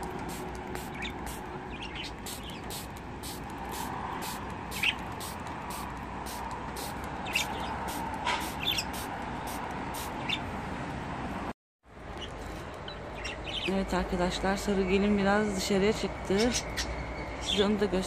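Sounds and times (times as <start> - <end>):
budgerigars chirping: 7.2 - 7.8, 8.4 - 9.0.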